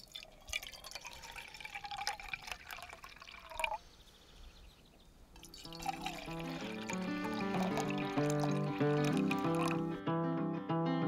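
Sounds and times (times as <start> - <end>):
coffee pouring into mug: 0.0 - 3.8, 5.4 - 10.0.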